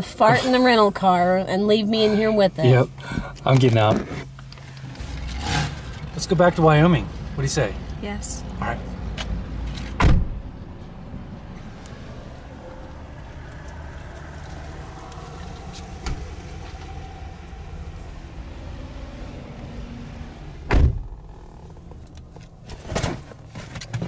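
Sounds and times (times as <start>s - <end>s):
low rumble inside car: 9.7s - 24.0s
car door thump: 10.0s - 10.4s, 20.7s - 21.2s.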